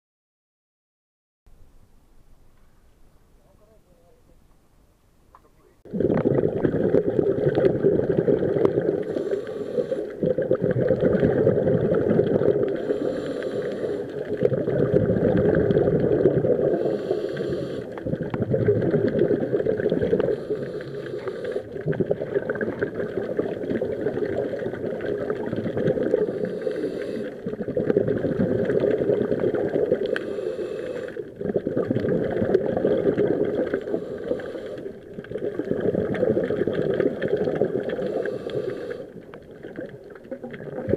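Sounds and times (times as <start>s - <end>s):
exhaled bubbles gurgling: 5.8s - 40.9s
regulator inhaling hiss: 9.0s - 10.2s, 12.7s - 14.3s, 16.7s - 18.0s, 20.2s - 21.7s, 26.1s - 27.4s, 30.0s - 31.2s, 33.8s - 35.0s, 38.0s - 39.2s.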